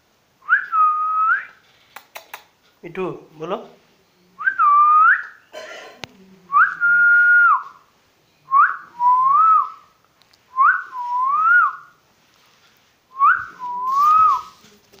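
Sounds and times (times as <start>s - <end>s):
person whistling: 0.5s - 1.6s, 6.5s - 7.8s, 8.5s - 9.9s, 10.5s - 11.9s, 13.1s - 14.6s
rustle and click: 1.5s - 2.8s, 12.2s - 15.0s.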